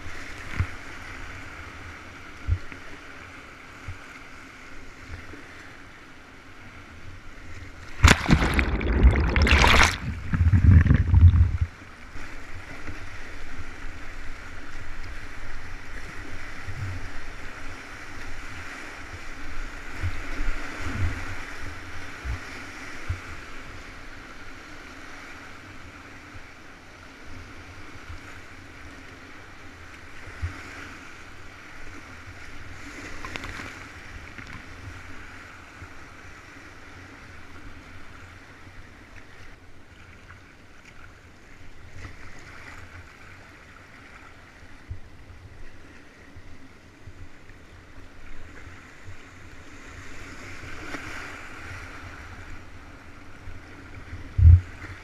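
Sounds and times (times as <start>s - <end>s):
whitewater rushing and splashing: 7.9s - 12.4s.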